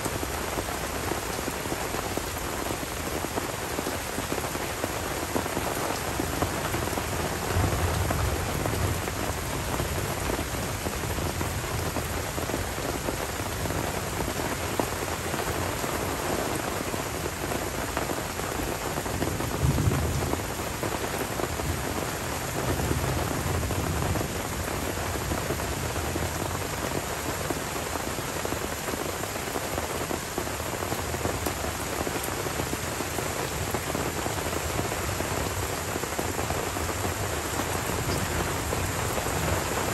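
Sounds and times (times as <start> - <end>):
rain on leaves: 0.0 - 39.9
low rolling thunder: 6.8 - 12.2, 19.2 - 20.8, 36.9 - 39.9.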